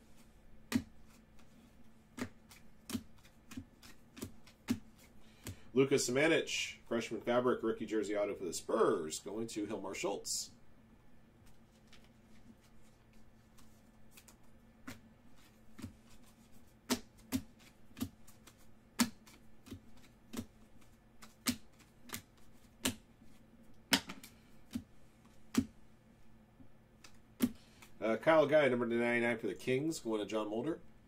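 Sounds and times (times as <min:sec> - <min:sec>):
cards flipping clicks and snaps: 0:02.1 - 0:05.6, 0:11.4 - 0:23.0, 0:23.8 - 0:24.8.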